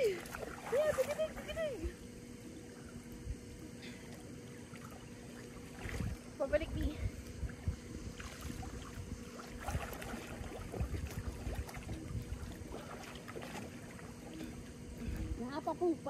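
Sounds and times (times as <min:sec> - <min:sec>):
pool water splashing: 0:00.0 - 0:16.0
wind rumble on microphone: 0:05.7 - 0:13.6.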